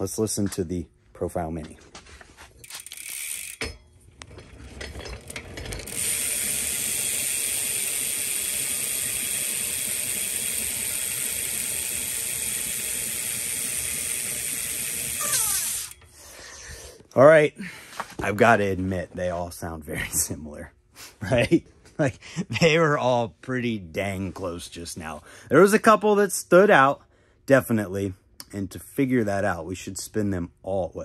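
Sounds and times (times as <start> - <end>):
bicycle hub pawls clicking: 2.6 - 16.1
wheel knocks: 3.5 - 7.0.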